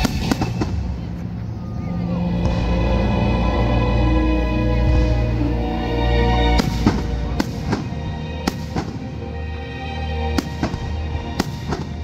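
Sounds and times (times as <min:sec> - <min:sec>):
fireworks bursting with sharp bangs: 0:00.0 - 0:01.2, 0:06.6 - 0:09.1, 0:10.4 - 0:12.0
music playing: 0:00.0 - 0:12.0.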